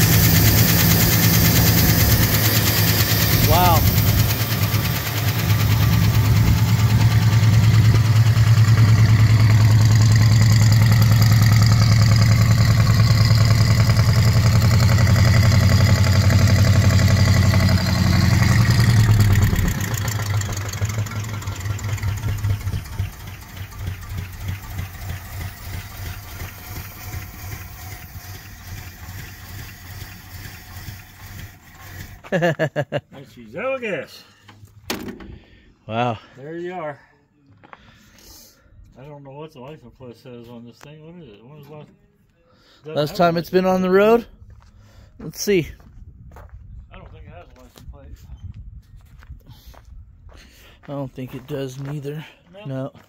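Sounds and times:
car engine running loud: 0.0 - 32.2.

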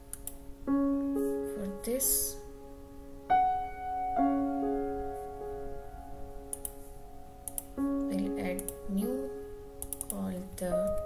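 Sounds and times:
soft piano chords: 0.0 - 11.0
faint clicks: 6.5 - 6.8, 7.4 - 7.8, 9.8 - 10.2.

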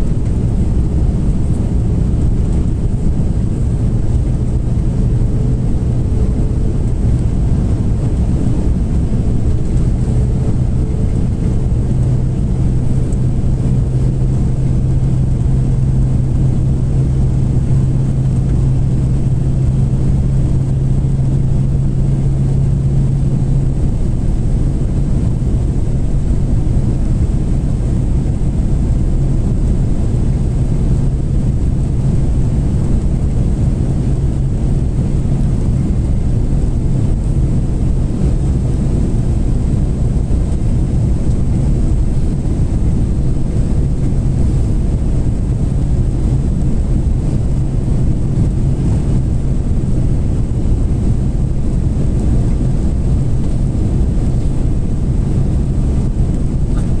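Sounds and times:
engine and airflow rush: 0.0 - 57.0
low hum: 0.0 - 57.0.

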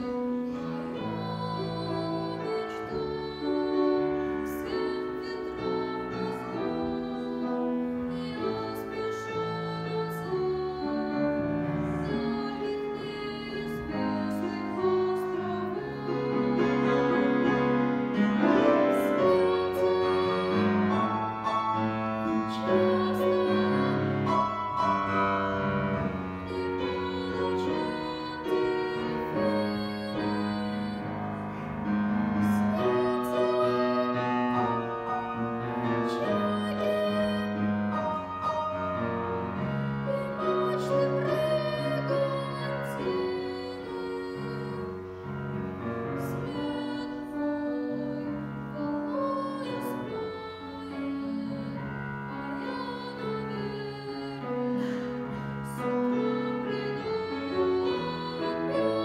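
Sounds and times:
grand piano playing: 0.0 - 59.0
boy singing: 0.6 - 11.4, 26.5 - 31.1.

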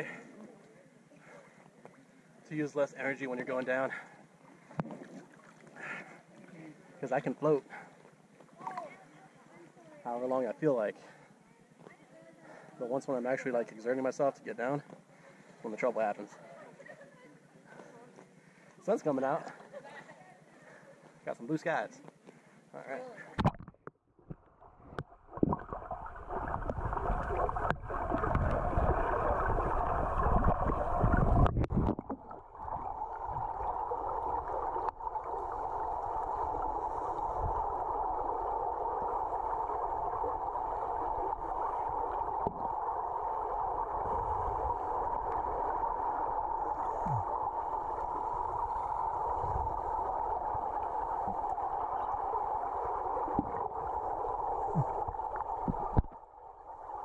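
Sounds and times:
underwater rumble of moving water: 23.4 - 57.0
steady water hiss: 32.3 - 57.0.

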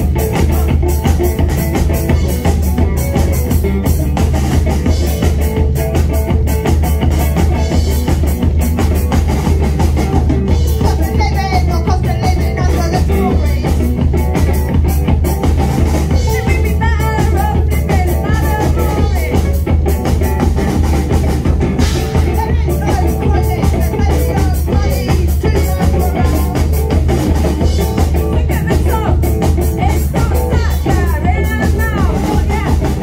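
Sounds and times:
person singing: 0.0 - 3.9, 10.0 - 14.8, 16.1 - 33.0
bass guitar: 0.0 - 33.0
driving drum kit: 0.0 - 33.0
electric guitar: 0.0 - 33.0.

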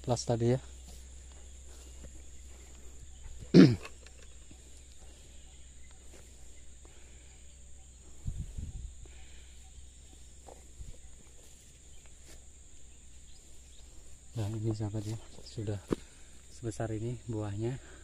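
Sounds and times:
soft low rumbling: 4.3 - 16.6.

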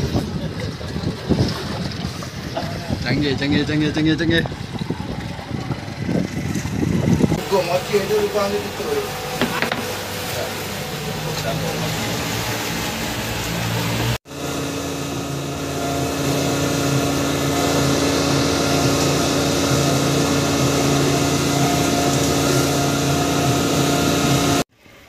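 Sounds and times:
outboard motor running: 0.0 - 24.7
wind: 0.0 - 25.0
water rushing: 6.5 - 24.7.

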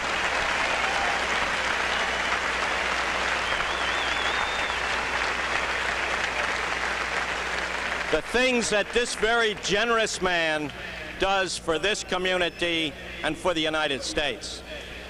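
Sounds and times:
crowd applauding: 0.0 - 10.0
wavering whistle: 3.4 - 5.0.

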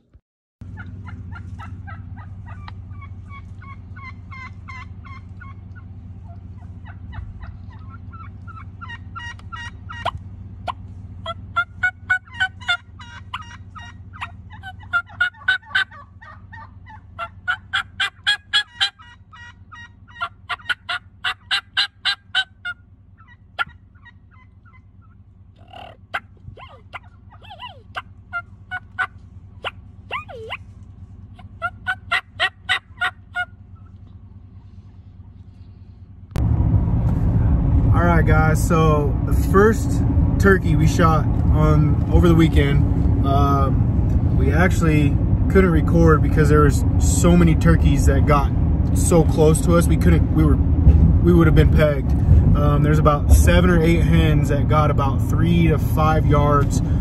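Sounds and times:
steady low hum: 0.0 - 57.0
turkeys gobbling: 0.6 - 36.0.

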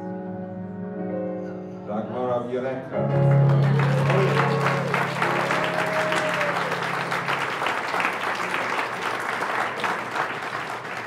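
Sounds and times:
band holding a chord: 3.0 - 9.8
audience applauding: 3.2 - 11.0.

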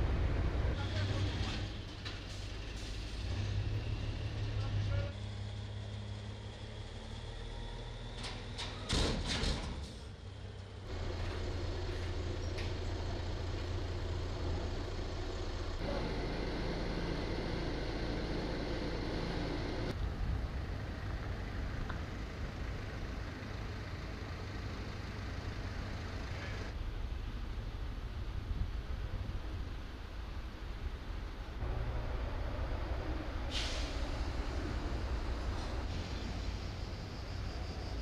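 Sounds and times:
low outdoor rumble: 0.0 - 38.0
truck engine running: 10.2 - 19.9.

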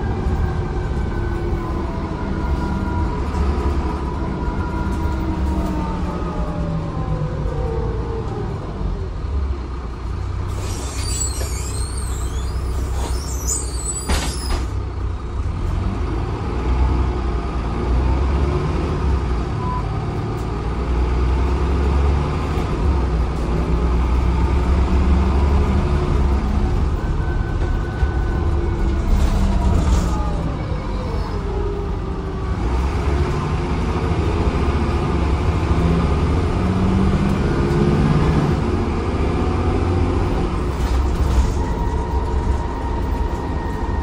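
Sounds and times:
bus engine and drivetrain: 0.0 - 44.0
high squeaking: 10.6 - 14.6.

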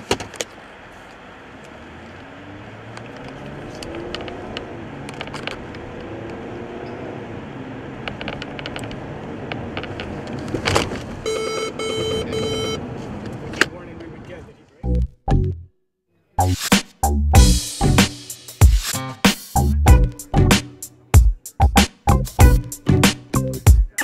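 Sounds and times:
tyre and road noise: 0.0 - 15.5
car engine accelerating: 0.6 - 13.5
rapid electronic warning beeps: 11.3 - 12.8.

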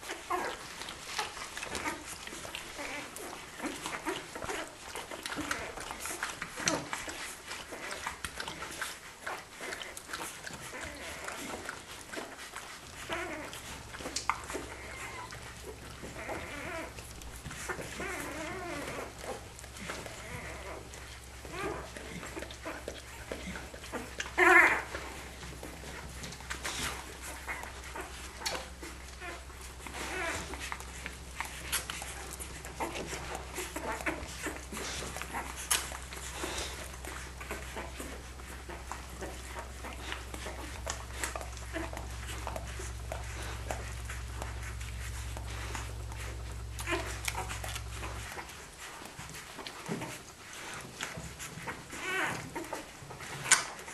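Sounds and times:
puppies squeaking and whining: 0.0 - 53.9.

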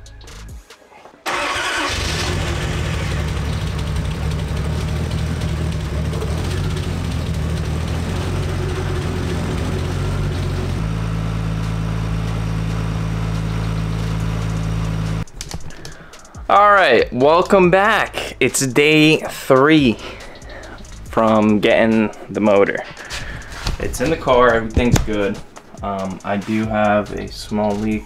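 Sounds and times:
car engine starting and idling: 1.2 - 15.3, 19.8 - 22.0.

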